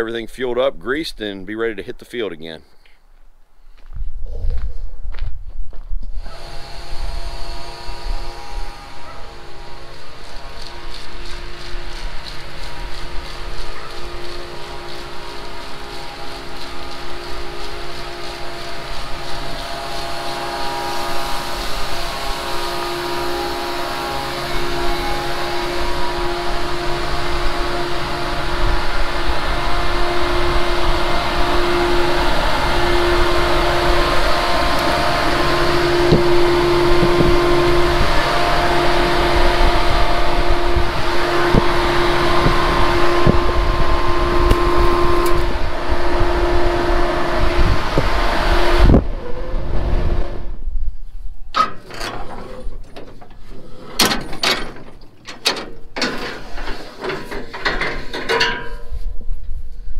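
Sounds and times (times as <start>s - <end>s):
fan-like rushing with hum: 6.0s - 51.5s
metal clanks and knocks: 51.5s - 59.0s.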